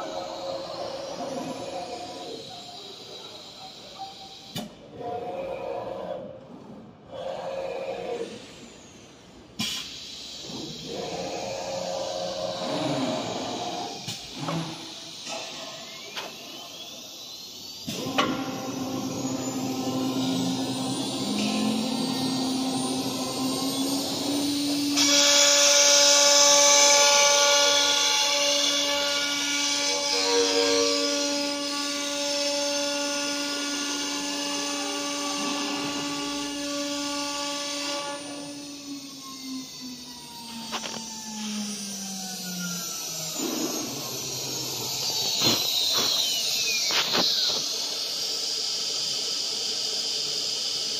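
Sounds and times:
bit cutting wood hiss: 0:09.6 - 0:31.8, 0:33.7 - 0:50.9
machine humming: 0:10.0 - 0:50.1
spindle whine rising in pitch: 0:10.4 - 0:28.1, 0:28.8 - 0:50.9.

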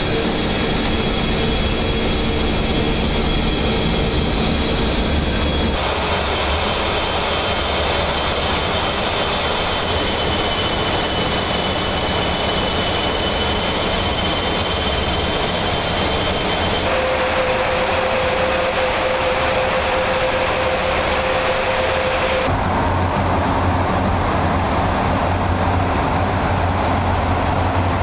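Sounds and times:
jet engine and airflow noise: 0:00.0 - 0:28.0
thin high whine: 0:05.3 - 0:23.2.

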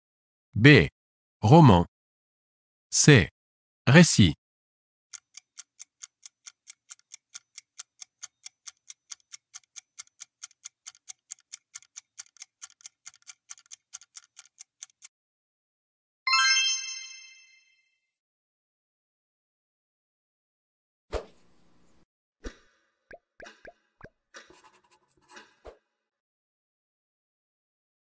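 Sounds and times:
rapid clock ticking: 0:05.1 - 0:15.1
bright chime: 0:16.3 - 0:17.8.

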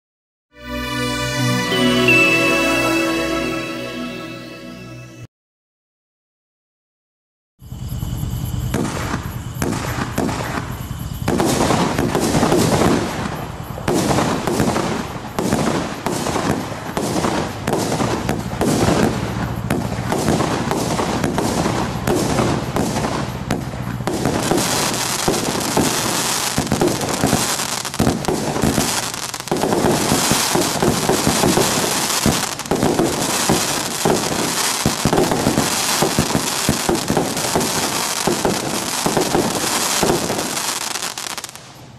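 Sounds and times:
fireworks cake firing: 0:08.8 - 0:41.8.

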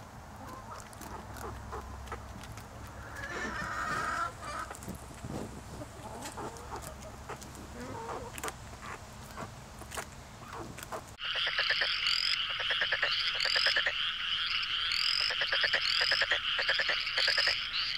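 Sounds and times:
chorus of frogs trilling: 0:11.2 - 0:17.9.

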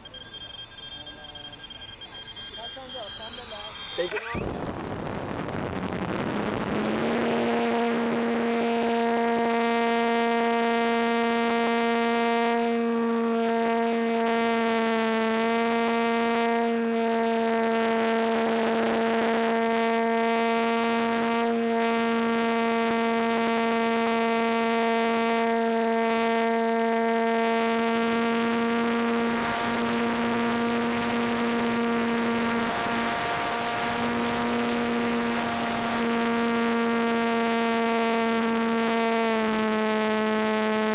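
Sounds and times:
electric motor and propeller whine: 0:00.0 - 0:40.9
wind rushing over microphone: 0:04.4 - 0:08.3.

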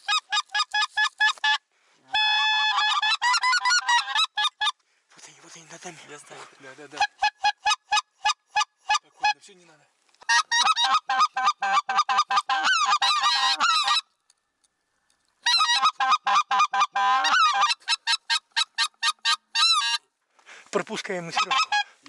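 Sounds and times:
goose call yelps and clucks: 0:00.0 - 0:04.8, 0:07.0 - 0:09.4, 0:10.2 - 0:14.1, 0:15.4 - 0:20.0, 0:21.3 - 0:22.0.

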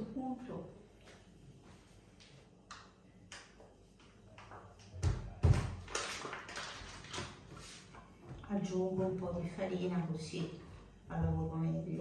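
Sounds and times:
dough rustling and scraping: 0:06.0 - 0:12.0.

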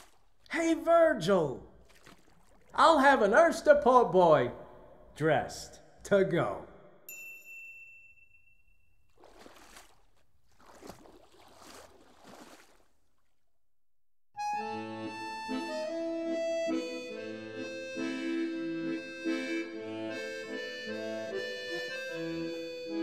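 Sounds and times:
melody over held chords: 0:14.4 - 0:23.0.

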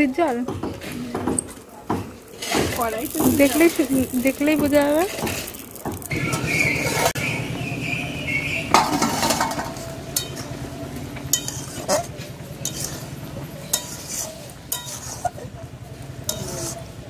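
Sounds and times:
metal lid clanking off wok: 0:08.7 - 0:10.5
metal spatula scraping in wok: 0:11.3 - 0:15.4, 0:16.2 - 0:17.0.

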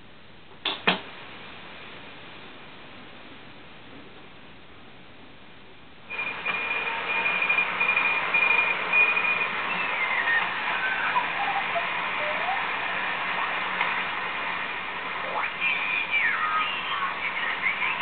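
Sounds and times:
radio band noise hiss: 0:06.0 - 0:18.0
whistling tones gliding down: 0:06.1 - 0:13.6
high tone keying on and off: 0:06.1 - 0:18.0.

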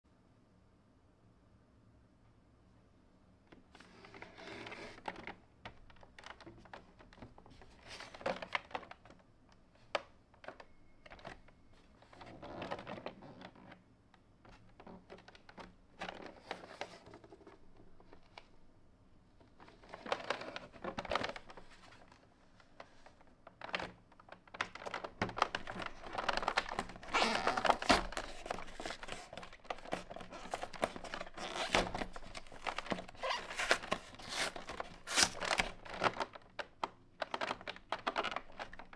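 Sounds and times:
hands handling cardboard box: 0:19.7 - 0:38.9.

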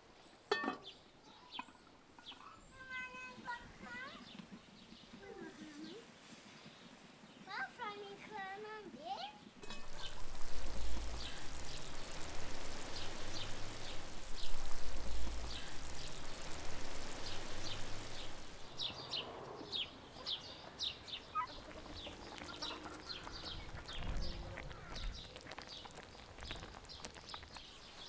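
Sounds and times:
small birds chirping: 0:00.0 - 0:28.0
steady hiss: 0:01.9 - 0:28.0
low rumbles: 0:09.6 - 0:19.8, 0:21.5 - 0:27.8.

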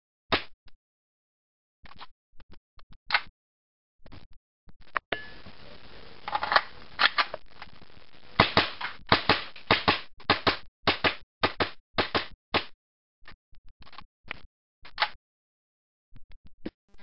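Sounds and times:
rapid airsoft pistol shots: 0:08.4 - 0:12.7.

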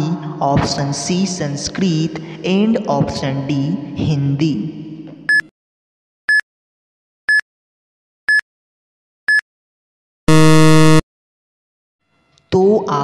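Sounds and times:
buzzer: 0:10.3 - 0:11.0
short high beeps: 0:10.3 - 0:11.0.

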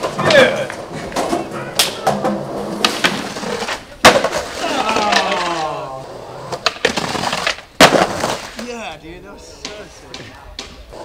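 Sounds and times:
skateboard clacks and slaps: 0:00.0 - 0:05.8, 0:06.4 - 0:08.7, 0:09.6 - 0:11.0
skateboard wheels rolling on concrete: 0:00.0 - 0:11.0.

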